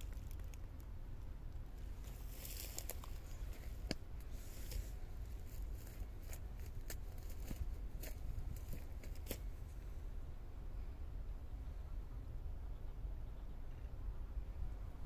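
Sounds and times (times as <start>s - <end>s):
light clicks and rustles: 0.0s - 0.9s, 1.5s - 9.5s
steady low rumble: 0.0s - 15.0s.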